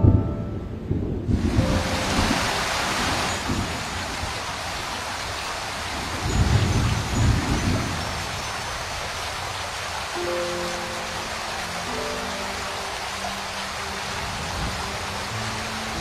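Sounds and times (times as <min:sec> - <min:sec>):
low rumble of thunder: 0:00.0 - 0:04.9, 0:05.9 - 0:08.6
steady rain hissing: 0:00.0 - 0:16.0.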